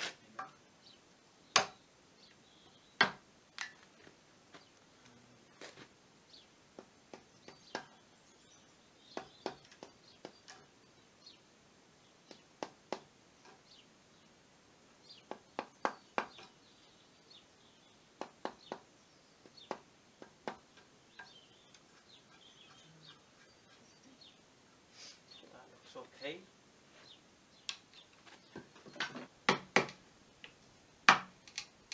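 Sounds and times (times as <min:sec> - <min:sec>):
birds chirping: 0:00.2 - 0:03.1, 0:06.2 - 0:29.1
mallet striking chisel: 0:01.6 - 0:01.8.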